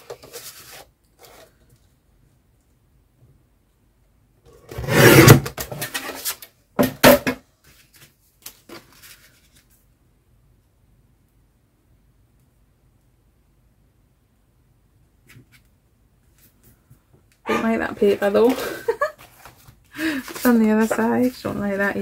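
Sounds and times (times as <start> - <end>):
faint paper rustles: 0.0 - 1.9, 7.6 - 9.9, 18.1 - 22.0.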